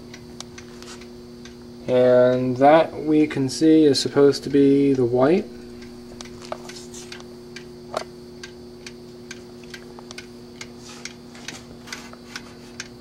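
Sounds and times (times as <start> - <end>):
battery charger humming: 0.0 - 13.0
timer ticking: 4.4 - 7.8, 8.4 - 11.2.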